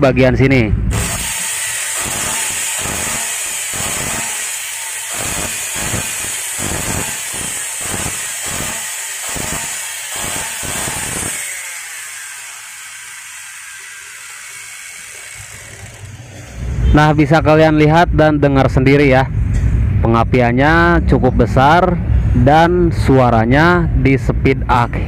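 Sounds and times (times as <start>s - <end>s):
crackling rattle from saw: 0.9s - 16.3s
circular saw motor running: 0.9s - 16.8s.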